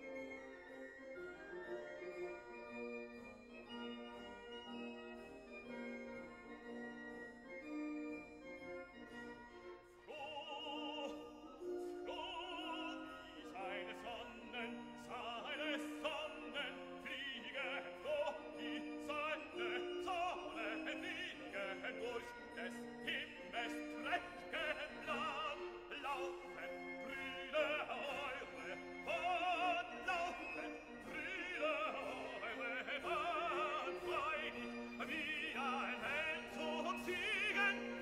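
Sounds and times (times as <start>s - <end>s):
operatic voice singing: 10.0s - 38.0s.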